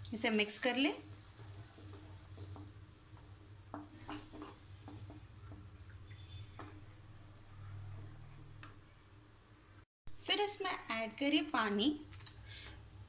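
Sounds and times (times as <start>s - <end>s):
light sizzle: 0.0s - 12.8s
spatula scraping a pan: 0.9s - 7.1s.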